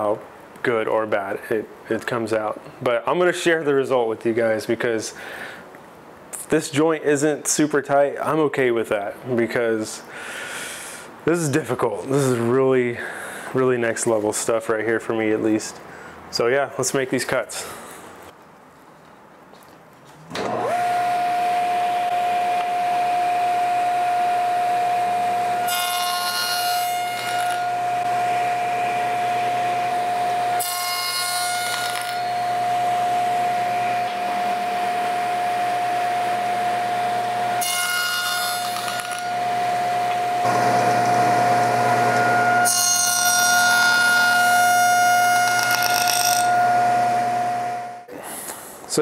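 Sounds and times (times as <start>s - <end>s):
table saw whining: 20.3s - 48.1s
saw blade rasping through wood: 40.4s - 47.2s.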